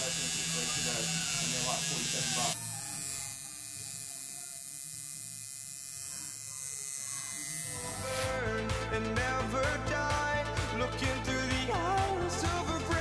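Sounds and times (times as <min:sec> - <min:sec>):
tattoo machine buzzing: 0:00.0 - 0:08.4.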